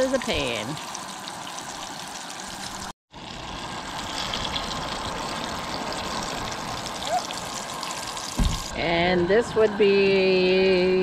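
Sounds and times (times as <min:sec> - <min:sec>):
fish frying in hot oil: 0:00.0 - 0:08.7.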